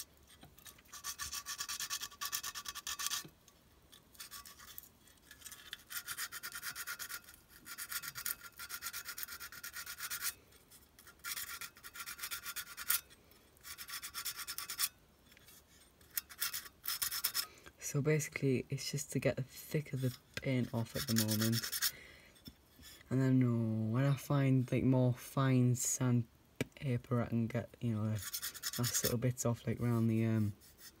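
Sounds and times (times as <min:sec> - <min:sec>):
sandpaper rubbing on metal: 0:00.9 - 0:03.3, 0:04.1 - 0:04.8, 0:05.4 - 0:10.4, 0:11.0 - 0:13.0, 0:13.6 - 0:14.9, 0:16.1 - 0:17.5, 0:19.8 - 0:21.9, 0:28.2 - 0:29.2.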